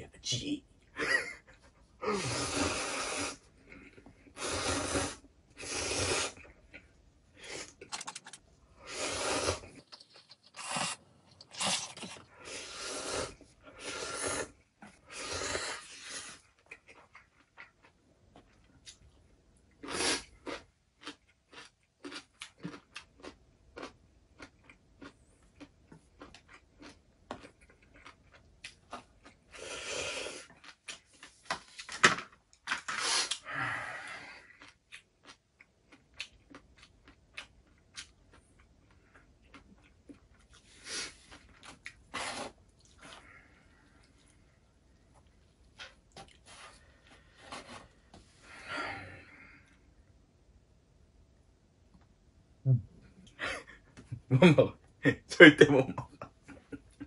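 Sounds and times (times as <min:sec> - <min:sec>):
person slurping noodles: 0:02.0 - 0:03.5, 0:04.3 - 0:06.5, 0:08.8 - 0:16.5, 0:19.8 - 0:20.3, 0:29.5 - 0:30.5, 0:32.9 - 0:34.4, 0:42.1 - 0:43.4
person chewing: 0:02.5 - 0:19.1, 0:19.7 - 0:31.4, 0:34.2 - 0:47.8.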